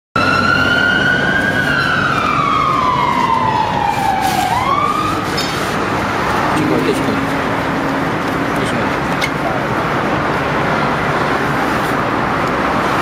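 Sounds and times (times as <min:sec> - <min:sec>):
siren wailing: 0:00.2 - 0:07.1.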